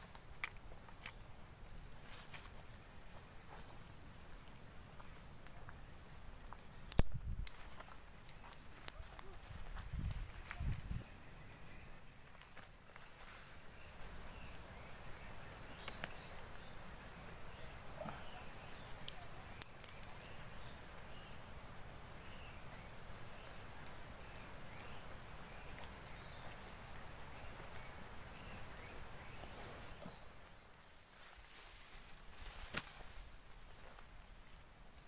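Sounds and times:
faint chirps: 7.6s - 30.9s.

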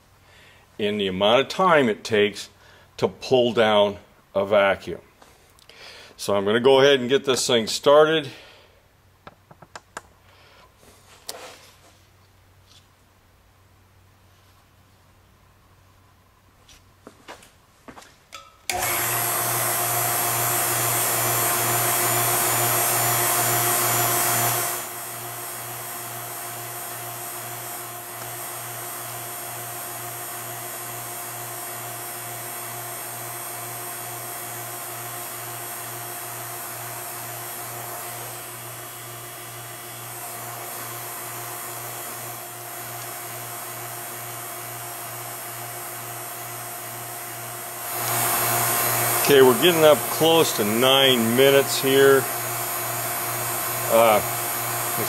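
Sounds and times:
vacuum pump humming: 18.7s - 55.0s.

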